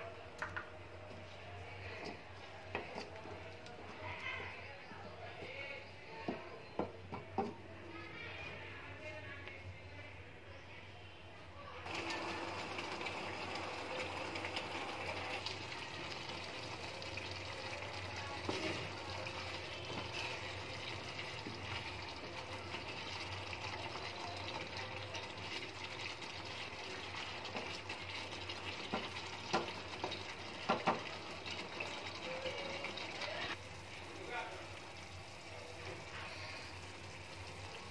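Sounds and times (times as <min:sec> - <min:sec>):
stirring in a pot: 0:01.1 - 0:07.7, 0:11.8 - 0:37.9
curry bubbling in a pot: 0:11.8 - 0:37.9.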